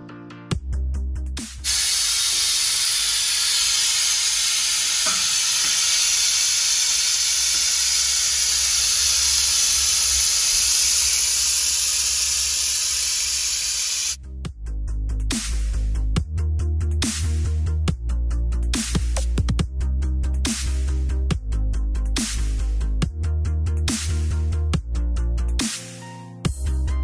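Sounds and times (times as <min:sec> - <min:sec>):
loud steady hiss: 0:01.6 - 0:14.2.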